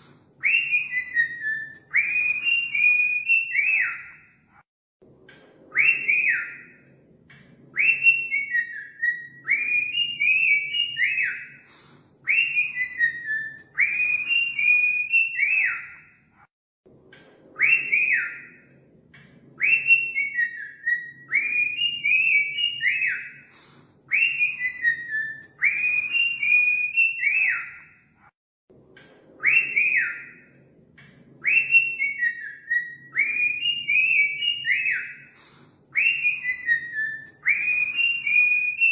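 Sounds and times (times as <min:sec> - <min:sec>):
cockatiel whistling: 0:00.4 - 0:04.2, 0:07.8 - 0:11.7, 0:12.3 - 0:16.1, 0:19.6 - 0:27.9, 0:31.4 - 0:38.9.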